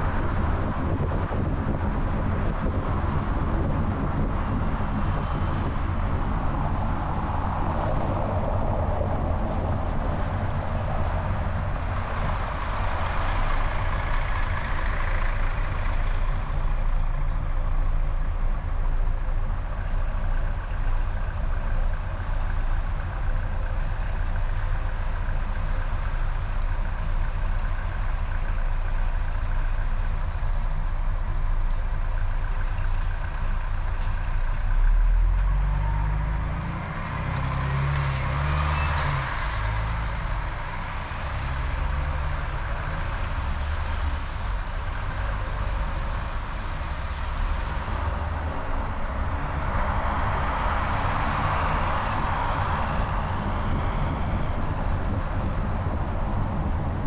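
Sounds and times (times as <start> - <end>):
wind rushing over microphone: 0.0 - 17.9, 39.2 - 57.0
car engine and tyre rumble: 0.0 - 57.0.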